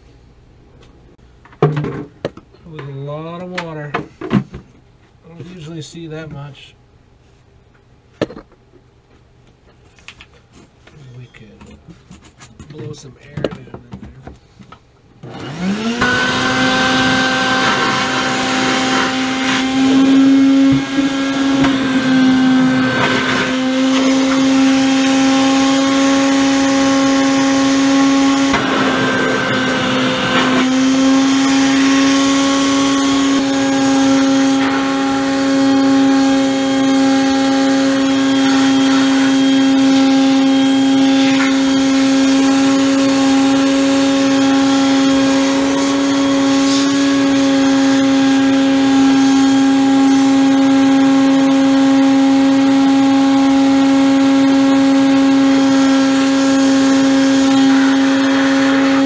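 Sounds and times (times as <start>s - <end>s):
vacuum motor whine: 15.2s - 59.0s.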